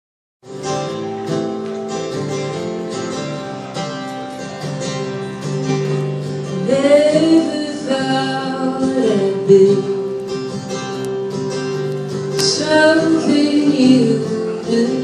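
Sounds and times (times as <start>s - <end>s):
acoustic guitars strumming: 0.4s - 15.0s
woman singing: 6.5s - 10.1s, 12.4s - 15.0s.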